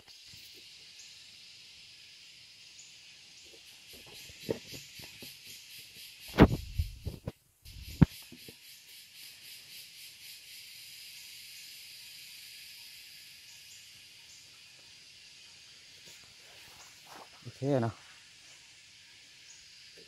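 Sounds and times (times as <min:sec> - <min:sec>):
high-pitched insect chorus: 0:00.0 - 0:20.0
knocks and rubs on microphone: 0:06.3 - 0:08.2.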